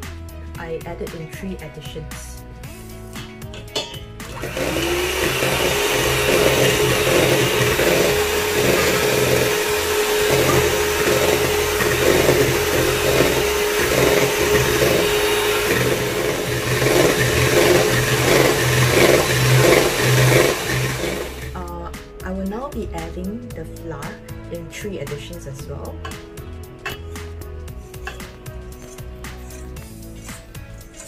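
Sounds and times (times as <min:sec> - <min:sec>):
electric hand mixer whining: 0:04.2 - 0:21.6.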